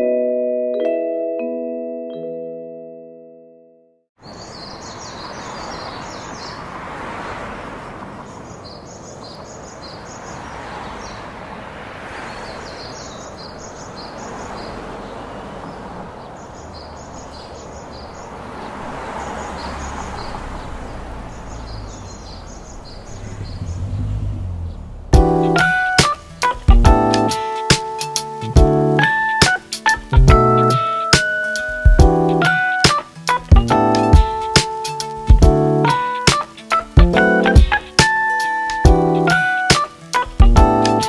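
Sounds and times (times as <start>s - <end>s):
piano music: 0.0s - 4.0s, 25.1s - 41.0s
small birds chirping: 4.2s - 41.0s
rushing noise: 18.3s - 25.8s
low rumble: 22.7s - 25.3s.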